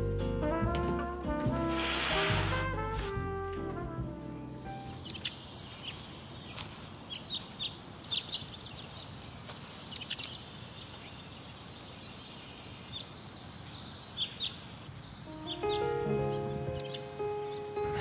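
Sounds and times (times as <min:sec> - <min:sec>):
outdoor background hiss: 0:00.0 - 0:18.0
small birds chirping: 0:04.5 - 0:18.0.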